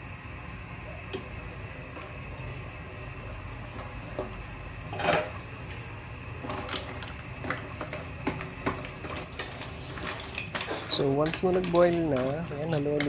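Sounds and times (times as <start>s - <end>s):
steady low hum: 0.0s - 13.0s
mussel shells clicking against pot: 6.7s - 13.0s.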